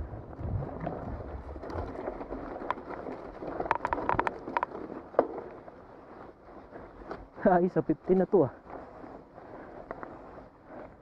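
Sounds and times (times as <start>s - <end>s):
wind on microphone: 0.0s - 2.0s
bike tyres rumbling on dirt: 0.0s - 11.0s
bike rattling clicks: 0.7s - 11.0s.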